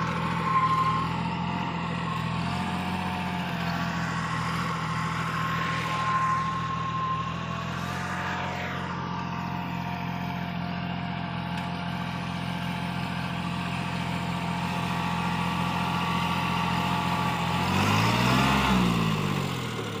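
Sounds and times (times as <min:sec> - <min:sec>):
thin steady whine: 0:00.0 - 0:17.6
tractor diesel engine under load: 0:00.0 - 0:20.0.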